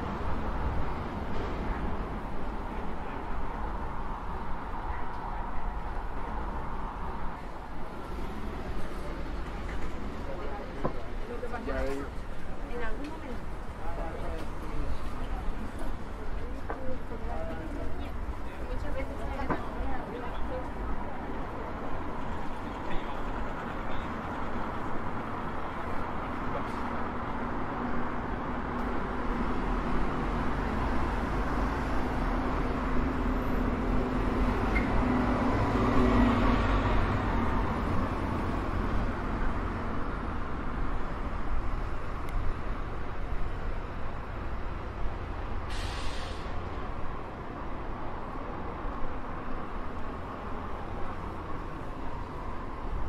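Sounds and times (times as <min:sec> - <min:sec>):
road traffic rumble: 0:00.0 - 0:53.0
short hiss: 0:45.7 - 0:46.6.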